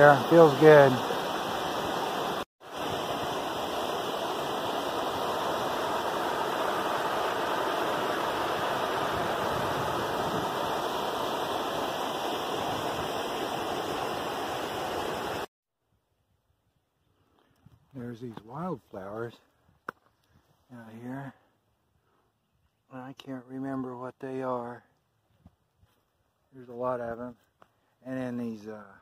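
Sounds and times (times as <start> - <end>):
water rushing over a dam: 0.0 - 15.5.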